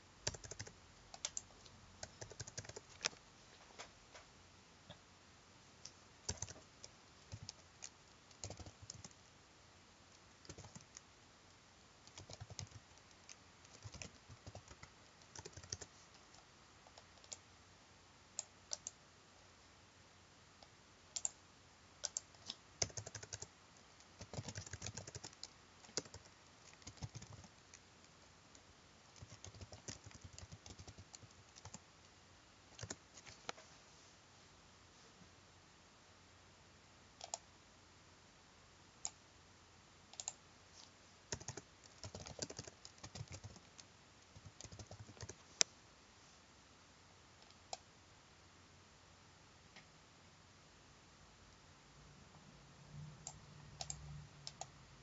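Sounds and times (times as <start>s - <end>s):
computer keyboard typing: 0.2s - 3.2s, 5.8s - 9.2s, 10.4s - 11.0s, 12.0s - 17.4s, 18.4s - 19.0s, 21.1s - 21.4s, 22.0s - 27.8s, 29.1s - 31.8s, 32.7s - 33.5s, 37.2s - 37.4s, 40.1s - 40.4s, 41.3s - 45.5s, 53.3s - 54.7s.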